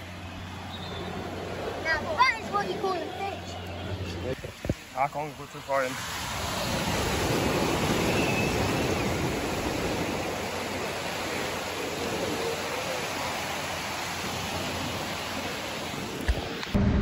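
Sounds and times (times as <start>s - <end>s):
small waves washing up sand: 4.2s - 16.7s.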